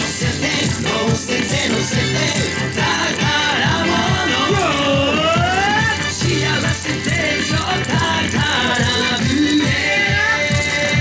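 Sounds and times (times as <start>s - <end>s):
dance music with steady beat: 0.0s - 11.0s
wooden clappers clacking: 0.0s - 11.0s.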